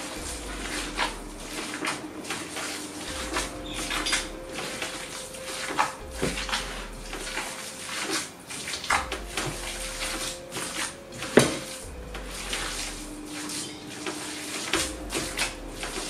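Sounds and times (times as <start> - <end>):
hands squishing food mixture: 0.0 - 16.0.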